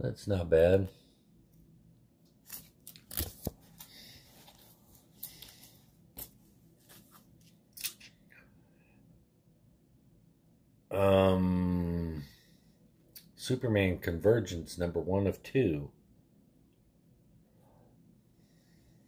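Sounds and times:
plastic sleeves rustling: 2.3 - 8.1.

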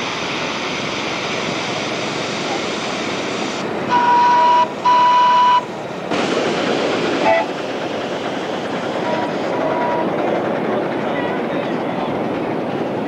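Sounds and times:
hiss of escaping steam: 0.0 - 4.3, 5.7 - 9.6
steam locomotive whistle: 3.9 - 5.7, 7.2 - 7.5, 9.0 - 10.2.

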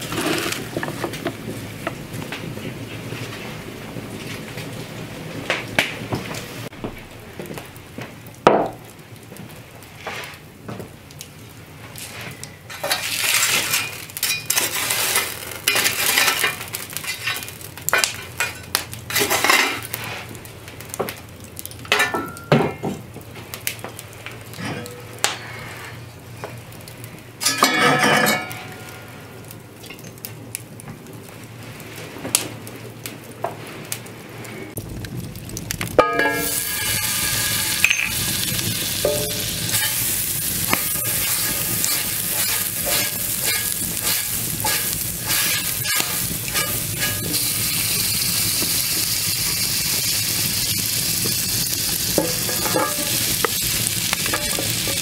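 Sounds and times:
coals being raked: 0.0 - 6.7, 9.8 - 10.5, 11.8 - 22.4, 23.1 - 55.0
iron skillet set on embers: 0.0 - 7.8, 11.9 - 30.6, 33.8 - 55.0
metal cookware clinking: 12.7 - 19.8, 21.9 - 22.8, 27.4 - 29.1, 36.0 - 38.2, 39.0 - 40.0, 40.7 - 47.4, 52.1 - 53.6, 54.2 - 55.0.

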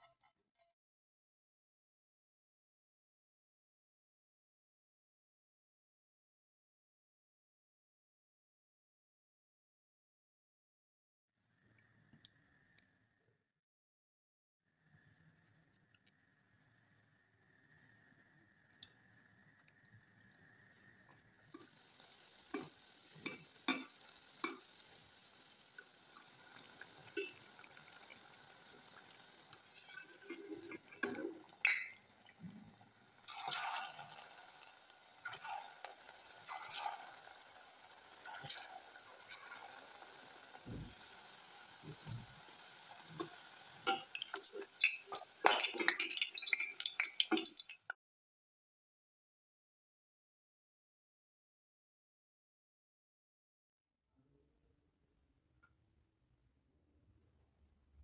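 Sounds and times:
dough sizzling in hot oil: 16.7 - 48.0.

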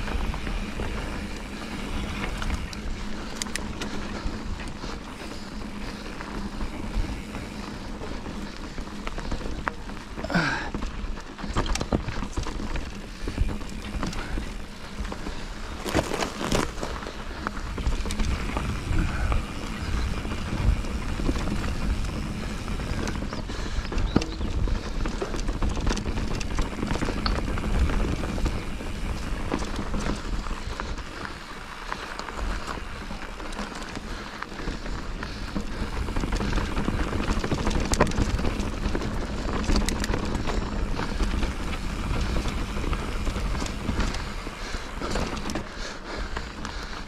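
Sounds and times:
wind rushing over microphone: 17.5 - 30.7.

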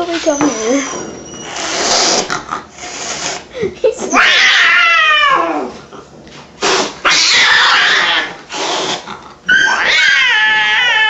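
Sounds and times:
cat hissing: 0.1 - 3.5, 6.6 - 11.0
cat yowling: 4.1 - 5.7, 7.0 - 8.4, 9.5 - 11.0.

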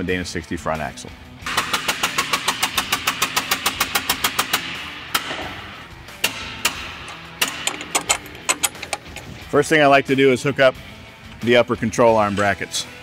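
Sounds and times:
ratchet wrench clicking: 7.1 - 9.3.

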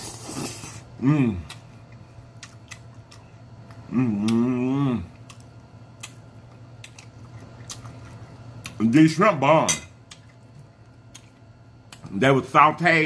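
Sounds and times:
person chewing noodles: 0.0 - 8.8
person moaning mmm: 0.3 - 1.6, 3.9 - 5.2.

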